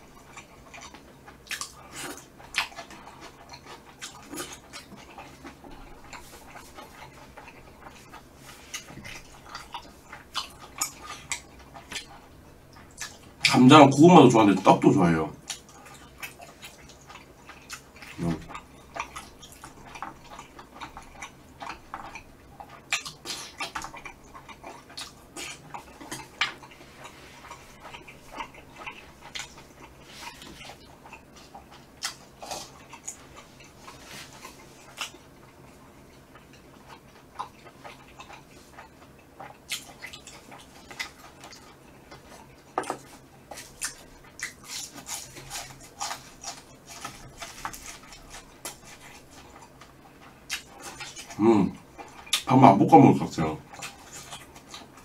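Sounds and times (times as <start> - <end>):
chewing and mouth smacking: 0.0 - 14.0, 14.7 - 52.5, 53.2 - 55.0.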